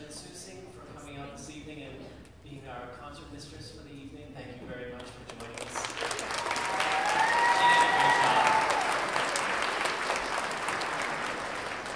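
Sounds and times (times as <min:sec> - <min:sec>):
audience applauding: 0:05.3 - 0:11.9
high whoop from crowd: 0:06.3 - 0:09.4.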